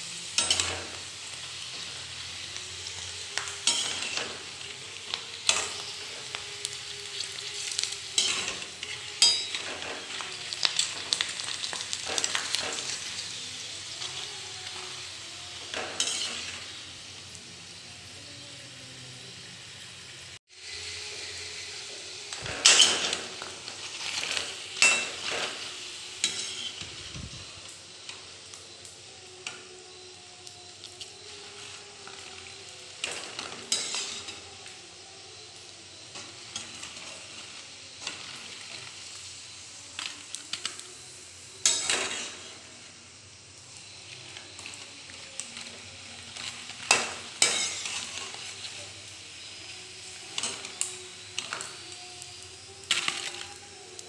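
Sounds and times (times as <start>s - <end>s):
food sizzling in hot oil: 0.0s - 54.0s
metal spoon scraping a pan: 0.2s - 15.0s, 15.6s - 16.8s, 21.2s - 27.0s, 31.0s - 34.8s, 41.6s - 42.7s, 43.8s - 51.8s.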